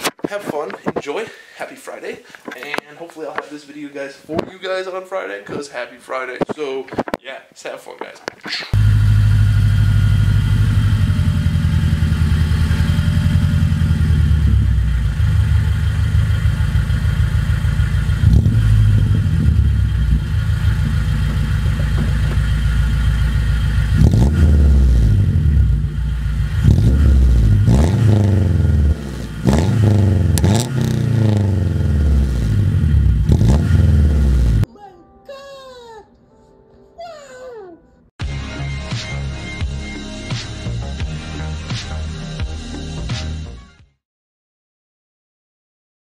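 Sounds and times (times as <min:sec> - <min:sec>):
car exhaust idling and revving: 0:08.8 - 0:34.7.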